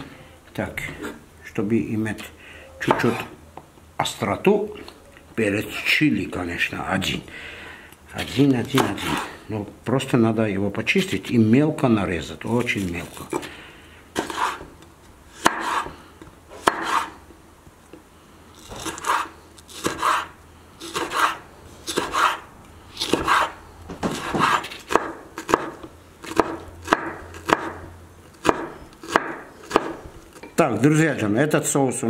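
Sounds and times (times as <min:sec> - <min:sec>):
knife chopping on wooden board: 0:08.7 - 0:09.2, 0:14.2 - 0:14.7, 0:15.4 - 0:16.0, 0:16.6 - 0:17.1, 0:18.7 - 0:20.3, 0:20.9 - 0:22.4, 0:23.0 - 0:30.0.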